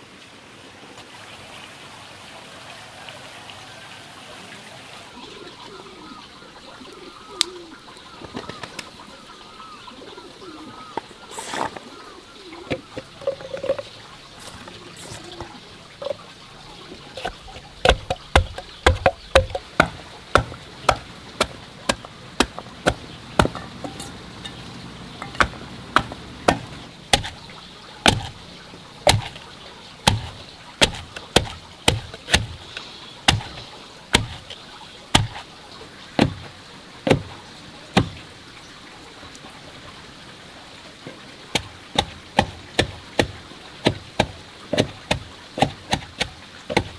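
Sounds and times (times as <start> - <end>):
pestle pounding in mortar: 17.2 - 24.6, 25.2 - 27.4, 28.0 - 28.4, 29.0 - 29.4, 30.0 - 34.6, 35.2 - 35.4, 41.6 - 46.9.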